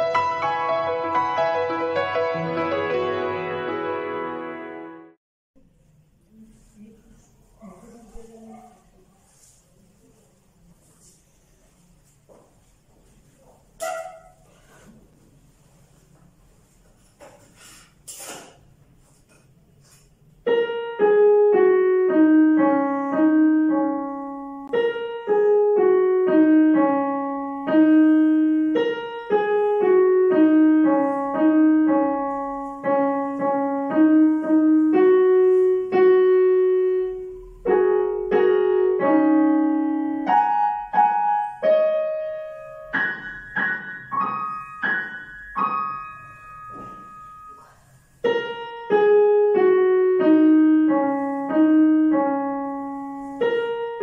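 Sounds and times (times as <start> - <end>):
digital piano melody: 0.0 - 5.2, 20.4 - 54.0.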